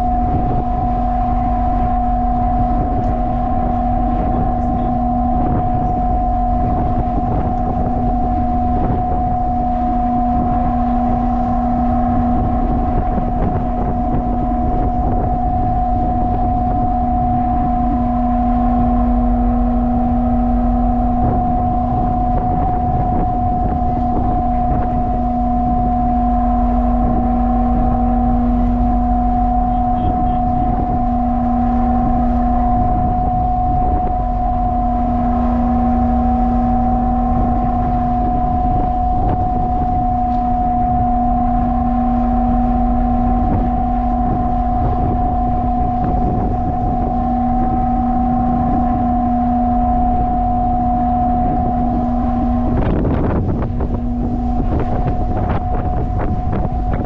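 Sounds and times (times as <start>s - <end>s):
ship machinery droning: 0.0s - 57.0s
wind buffeting microphone: 0.0s - 57.0s.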